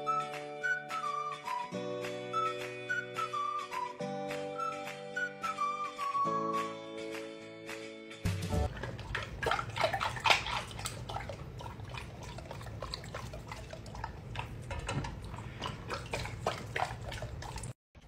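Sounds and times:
dog lapping water from bowl: 8.6 - 17.8
water dripping into bowl: 8.7 - 17.7.

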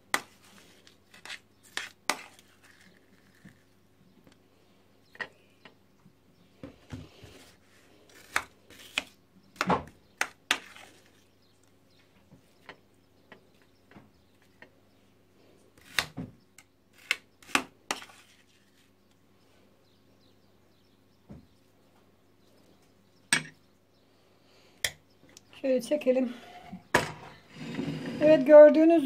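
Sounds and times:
metal spoon scraping metal pan: 27.5 - 28.6.

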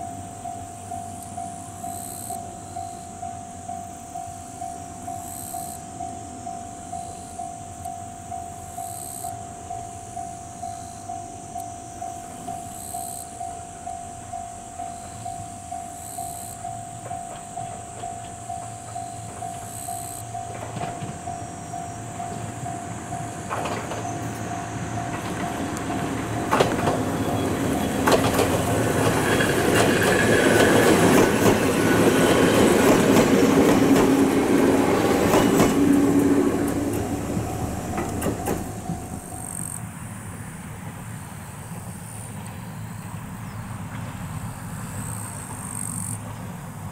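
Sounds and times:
electric train passing: 0.0 - 46.9
train wheels clacking: 12.1 - 39.5.

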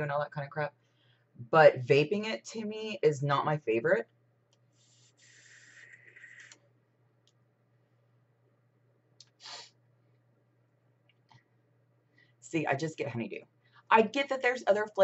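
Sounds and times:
vape inhale hiss: 4.9 - 6.5, 9.3 - 9.8.

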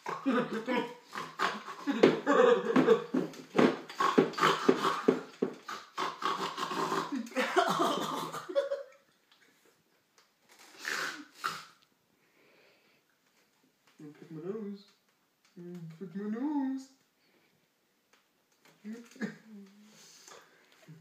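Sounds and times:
man making pulsing animal-like noises: 0.0 - 7.4.

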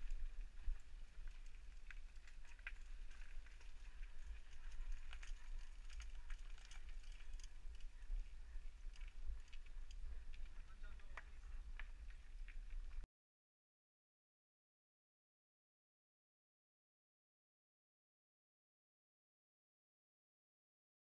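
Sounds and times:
bike clicks and rattles: 0.0 - 13.0.

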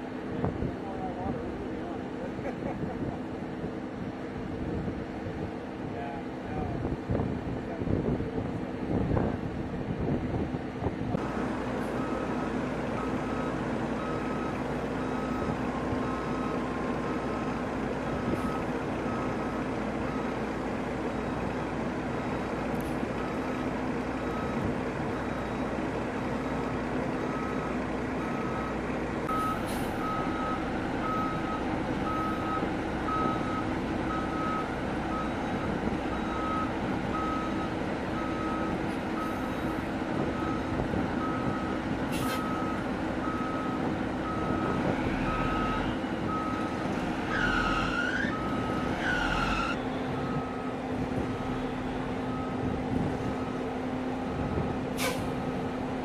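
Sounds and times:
truck engine noise: 0.0 - 56.0
truck reversing beeper: 11.2 - 56.0.

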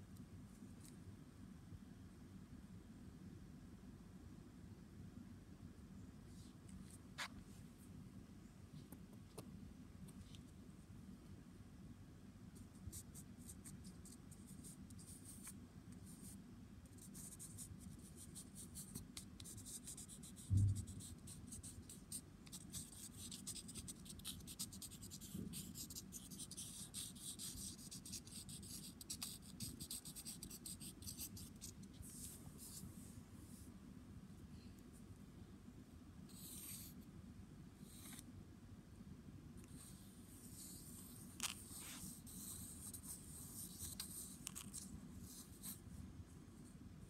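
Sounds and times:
pencil scratching on paper: 17.0 - 32.8
dull thump: 20.5 - 20.9.

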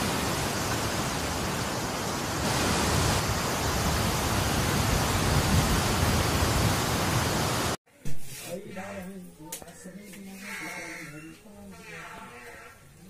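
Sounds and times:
steady rushing noise: 0.0 - 7.8.

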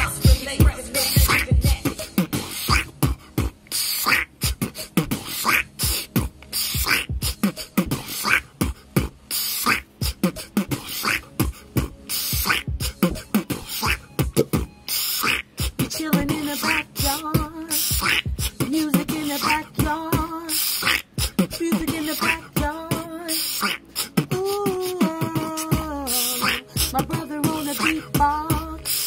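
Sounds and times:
man beatboxing: 0.0 - 29.0.

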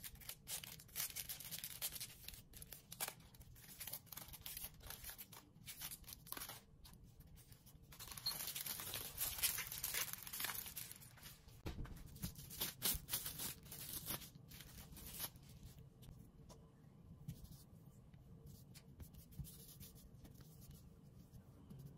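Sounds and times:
aluminium foil crinkling: 0.0 - 6.7, 7.9 - 11.4, 12.4 - 15.4
plastic wrap crackling and rustling: 0.0 - 6.7, 7.9 - 15.6.

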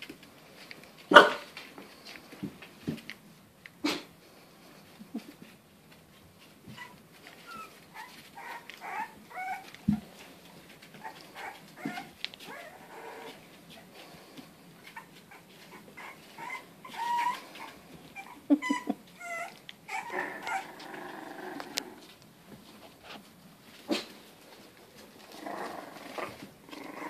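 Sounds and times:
puppy yipping and whining: 6.7 - 10.0, 10.8 - 13.8, 14.8 - 20.9
puppy growling: 6.8 - 10.2, 10.8 - 14.1, 14.8 - 22.2, 25.0 - 27.0.

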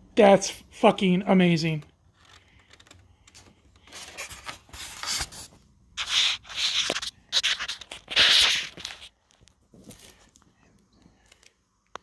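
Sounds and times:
styrofoam rubbing and scraping: 3.8 - 9.2.

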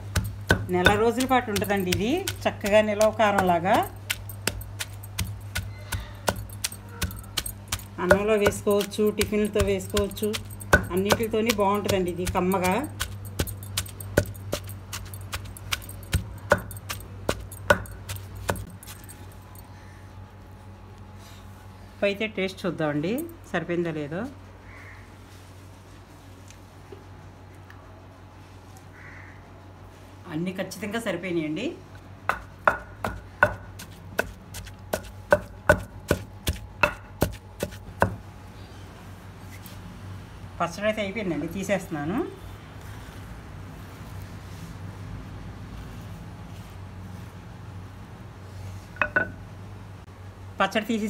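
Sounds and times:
pestle pounding in a mortar: 0.0 - 19.1, 32.3 - 38.2.

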